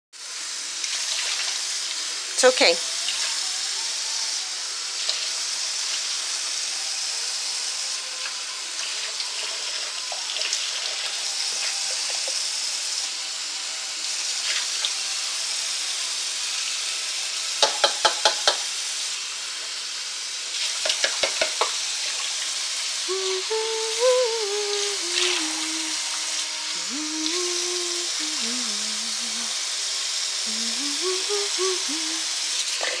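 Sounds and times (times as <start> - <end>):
tap water running into sink: 0.8 - 1.6, 17.6 - 18.7, 20.6 - 22.3
wavering pitched sound: 23.1 - 29.5, 30.4 - 32.3.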